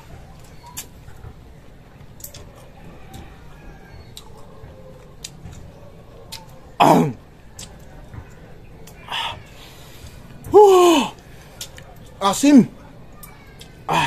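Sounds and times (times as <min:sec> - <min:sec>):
chewing crunchy mango: 0:04.0 - 0:06.7, 0:07.4 - 0:08.1
person exclaiming: 0:10.5 - 0:11.2.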